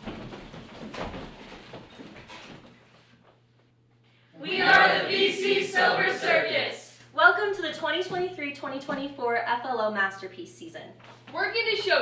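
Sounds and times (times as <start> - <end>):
people rustling and shuffling: 0.0 - 3.8.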